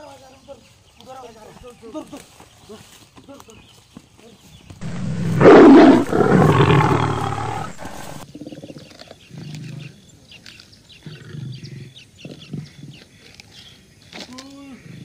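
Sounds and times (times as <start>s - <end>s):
low growls: 4.8s - 8.2s
tiger roar: 4.8s - 9.9s.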